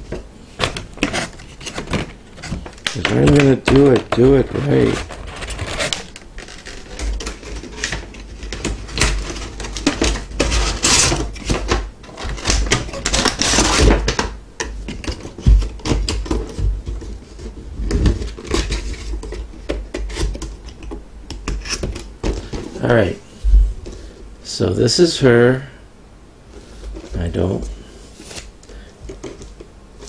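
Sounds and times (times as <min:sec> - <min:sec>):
plastic packaging clicks and crinkles: 0:00.1 - 0:22.9
packaging rustling: 0:00.6 - 0:20.8.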